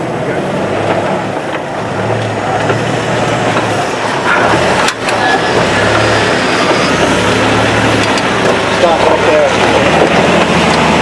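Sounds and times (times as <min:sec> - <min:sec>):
car engine running at low revs: 0:00.0 - 0:11.0.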